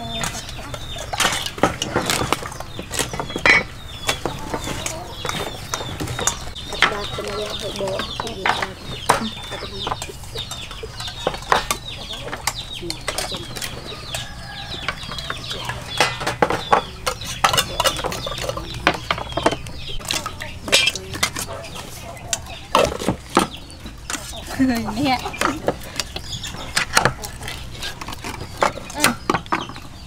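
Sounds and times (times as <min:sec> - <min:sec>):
chickens clucking: 0:00.0 - 0:30.0
cans and spoons clinking on bowl: 0:03.2 - 0:29.8.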